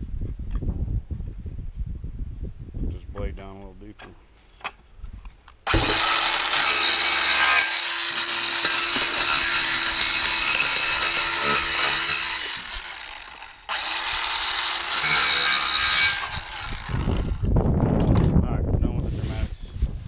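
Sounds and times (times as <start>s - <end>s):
circular saw cutting cardboard: 5.7s - 17.4s.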